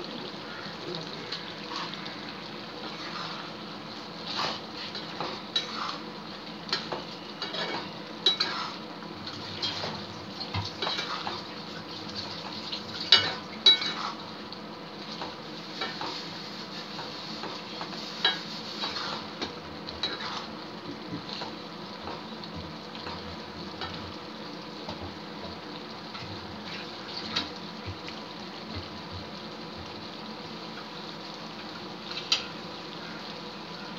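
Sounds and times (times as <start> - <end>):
gravy sizzling: 0.0 - 33.9
metal spatula scraping a pan: 2.9 - 3.6, 4.3 - 6.0, 6.7 - 8.8, 13.2 - 14.2, 15.8 - 19.4, 20.0 - 20.5.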